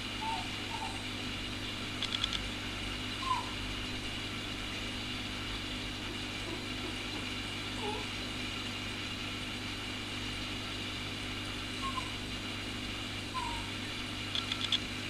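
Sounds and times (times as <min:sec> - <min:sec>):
low mechanical hum: 0:00.0 - 0:15.0
faint clicks: 0:02.0 - 0:02.5, 0:14.3 - 0:14.8.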